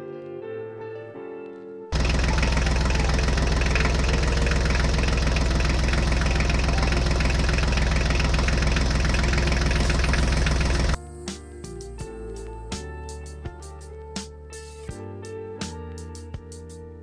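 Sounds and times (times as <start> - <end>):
tractor engine idling: 2.0 - 11.0.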